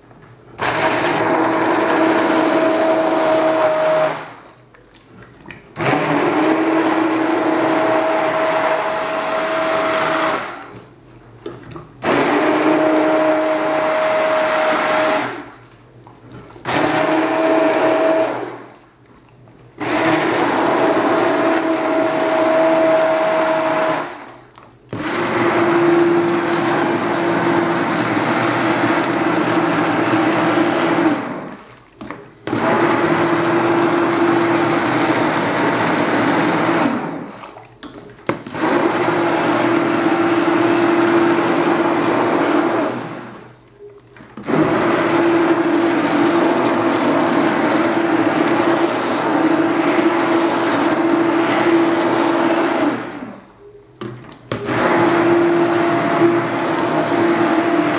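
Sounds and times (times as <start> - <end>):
immersion blender motor humming: 0.6 - 4.4, 5.8 - 10.8, 16.7 - 18.6, 19.8 - 24.3, 25.0 - 31.6, 32.5 - 37.2, 44.4 - 53.3, 54.7 - 57.9.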